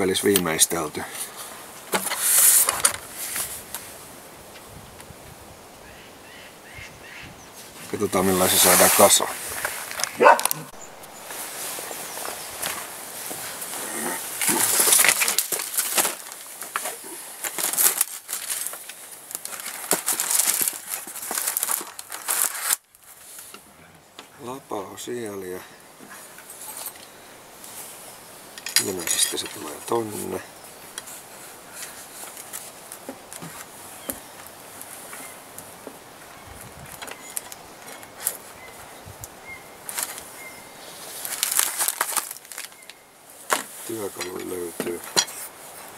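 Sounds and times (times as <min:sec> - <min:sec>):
crossbow clicks and scrapes: 0:01.9 - 0:03.8
packaging crinkling and rustling: 0:12.2 - 0:23.4, 0:39.8 - 0:40.3, 0:41.0 - 0:45.5
faint bird chirps: 0:36.3 - 0:41.0.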